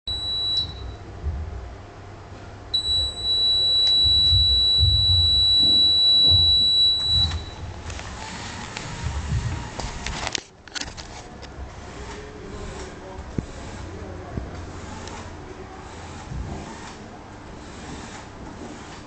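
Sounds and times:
high-pitched electronic buzzer tone: 2.8s - 7.7s.

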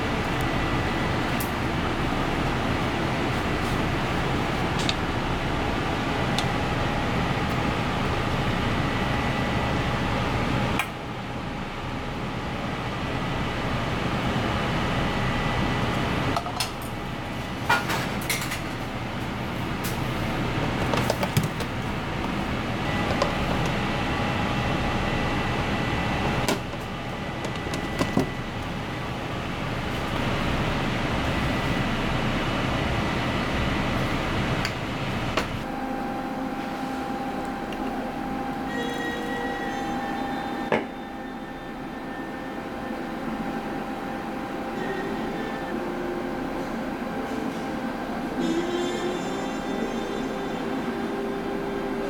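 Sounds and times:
kitchen ventilation hum: 0.0s - 52.0s
faint high steady tone: 37.5s - 43.0s.

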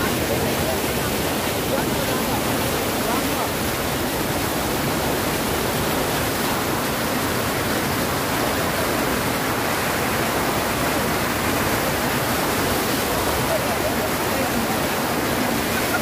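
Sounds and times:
water rushing over a weir: 0.0s - 16.0s.

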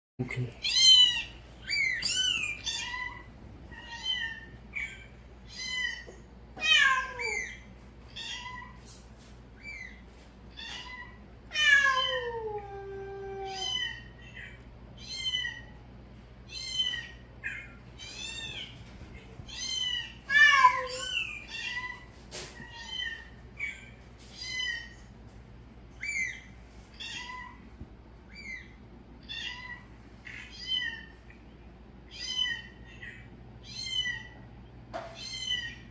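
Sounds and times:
cat meowing: 0.6s - 8.8s, 10.5s - 15.7s, 19.5s - 25.0s.

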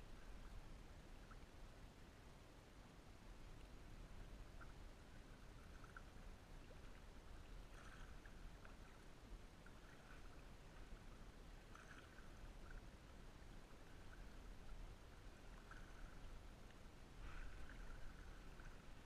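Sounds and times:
water lapping: 3.7s - 19.0s
small water splashes: 5.4s - 19.0s.

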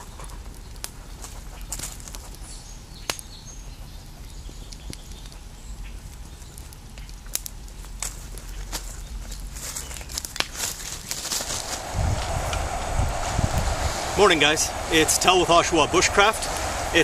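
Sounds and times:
dry leaves and twigs snapping: 6.4s - 12.7s
low background rumble: 11.4s - 17.0s.

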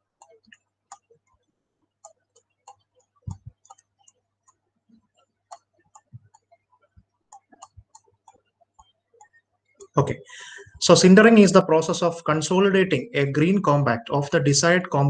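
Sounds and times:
computer mouse clicking: 0.0s - 10.0s.

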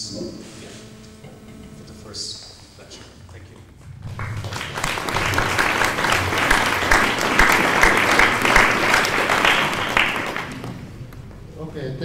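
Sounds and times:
audience applauding: 3.3s - 11.5s.

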